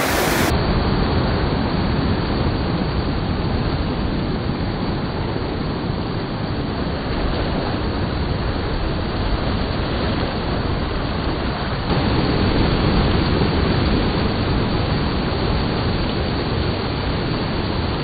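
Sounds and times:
surf washing up beach: 0.0s - 0.8s, 7.2s - 18.0s.

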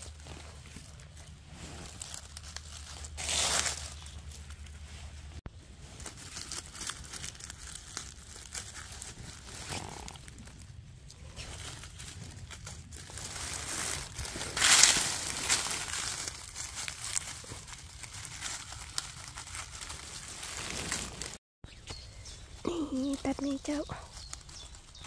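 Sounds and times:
dry leaves rustling: 0.0s - 21.4s, 22.2s - 25.0s.

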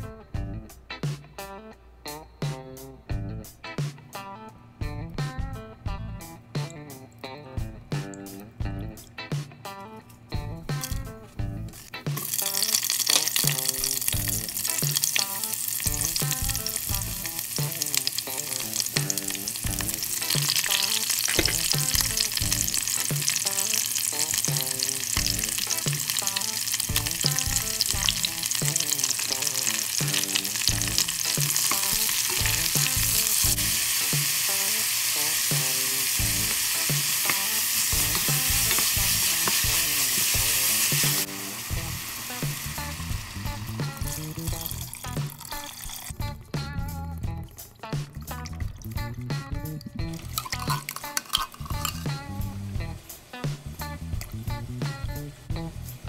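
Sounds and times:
vegetables sizzling in oil: 11.7s - 46.2s, 50.1s - 55.2s.

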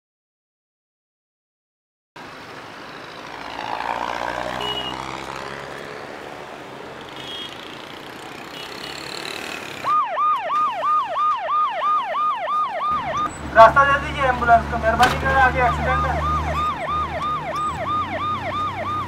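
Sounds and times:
street traffic noise: 2.2s - 19.0s
ambulance siren yelping: 9.8s - 19.0s.

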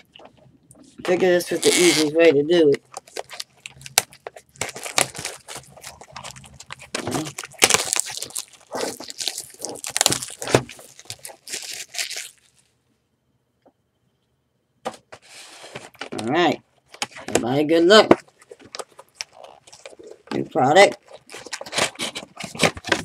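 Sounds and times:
plastic wrap tearing and crinkling: 1.1s - 12.7s, 18.2s - 23.0s.

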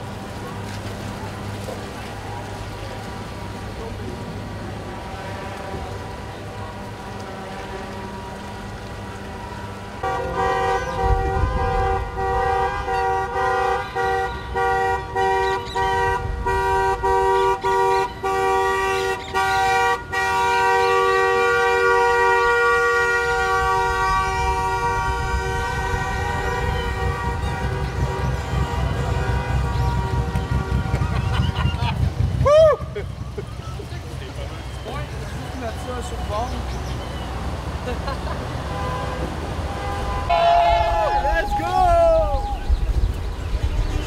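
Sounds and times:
traffic rumble: 0.0s - 44.0s
vehicle horns honking: 5.2s - 32.4s, 38.5s - 41.9s.

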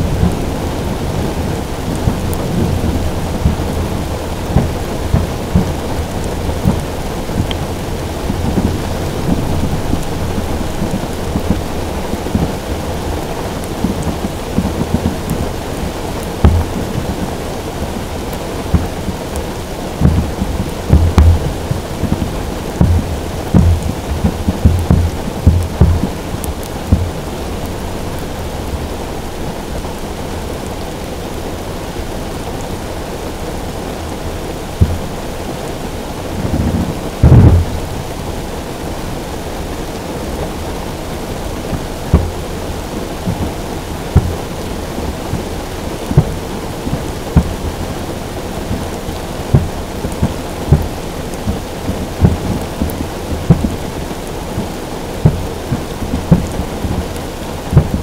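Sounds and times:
distant fireworks booming: 0.0s - 18.0s, 18.6s - 29.8s, 36.4s - 38.2s, 41.7s - 47.9s, 49.5s - 58.0s
heavy rain on a car roof: 0.0s - 58.0s.

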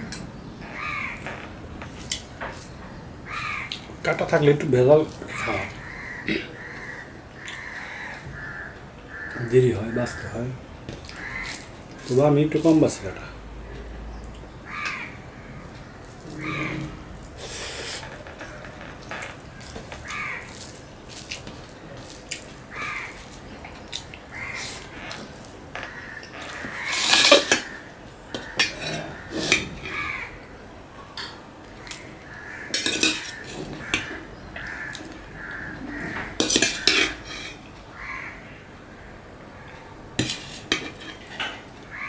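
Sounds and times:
soft chewing: 19.2s - 25.6s
spoon scraping steel bowl: 26.4s - 27.7s, 28.4s - 30.0s, 32.7s - 34.1s, 36.4s - 37.6s, 40.2s - 41.3s.

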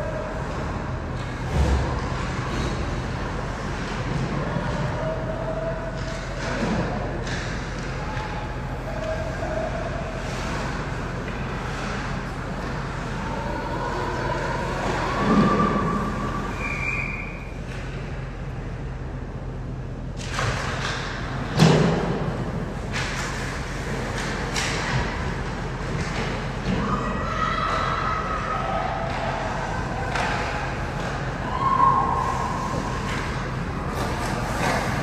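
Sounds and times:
faint voices: 0.0s - 16.8s
arena noise: 0.0s - 35.0s
hockey sticks and puck clacking: 5.9s - 9.6s, 22.9s - 26.9s, 29.1s - 31.6s, 32.3s - 35.0s.

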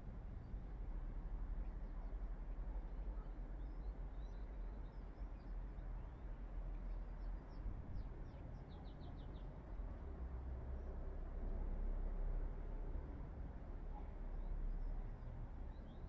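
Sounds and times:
small birds chirping faintly: 0.1s - 12.0s.

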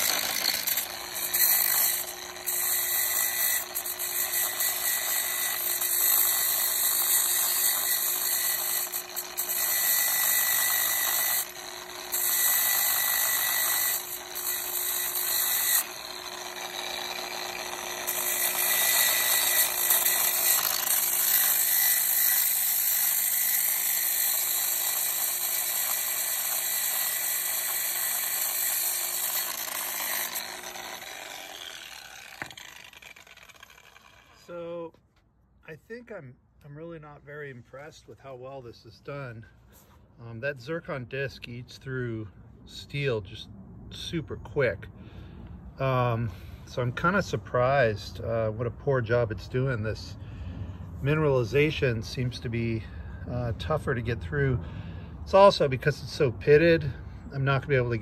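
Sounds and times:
angle grinder grinding metal: 0.0s - 34.8s.

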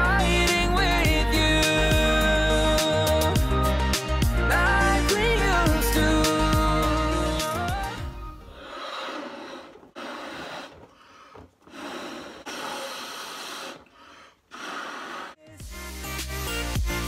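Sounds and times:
person blowing into balloons: 7.8s - 15.9s
quiet in-breaths: 8.4s - 15.4s.

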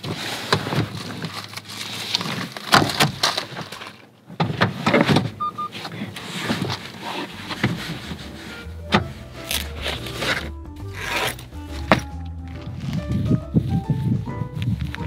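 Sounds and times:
short double beep: 5.4s - 5.7s.

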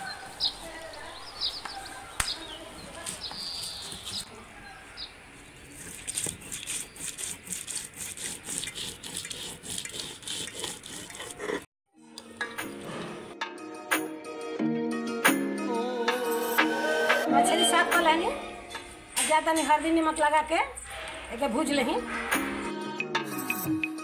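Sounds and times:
birds chirping: 0.0s - 7.4s
stone roller grinding on stone: 5.7s - 11.7s.

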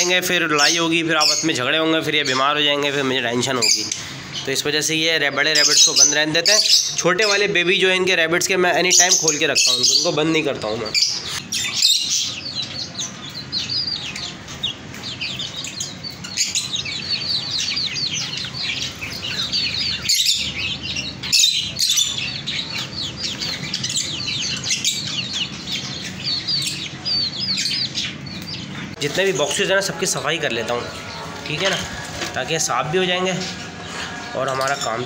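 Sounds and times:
small birds chirping: 0.0s - 35.0s.

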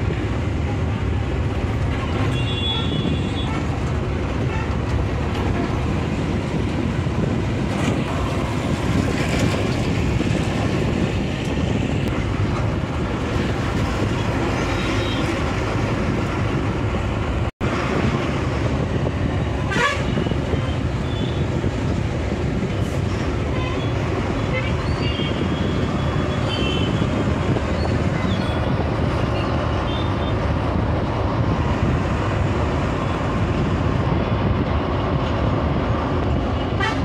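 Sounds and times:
road and engine noise: 0.0s - 37.0s.

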